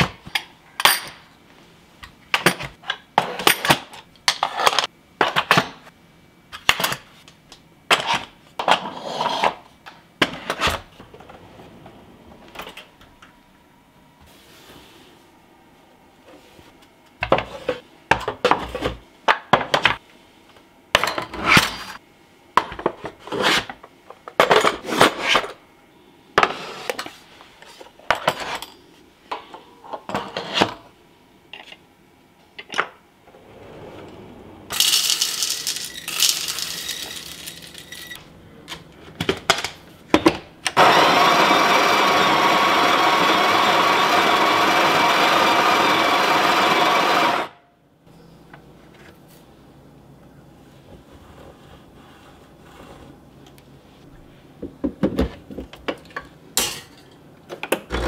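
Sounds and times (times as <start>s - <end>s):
coffee grinder grinding beans: 34.7s - 38.2s, 40.8s - 47.5s.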